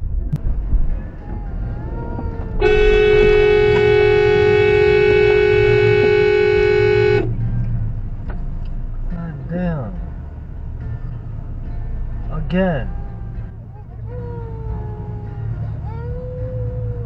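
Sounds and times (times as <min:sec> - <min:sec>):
road and engine rumble: 0:00.0 - 0:17.0
car horn long blast: 0:02.6 - 0:07.4.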